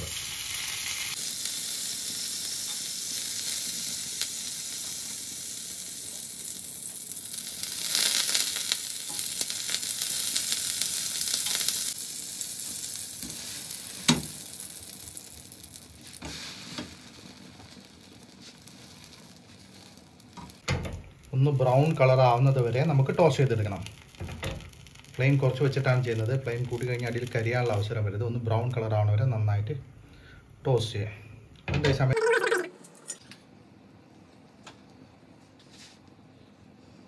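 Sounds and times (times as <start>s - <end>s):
butter sizzling on griddle: 0.0s - 27.9s.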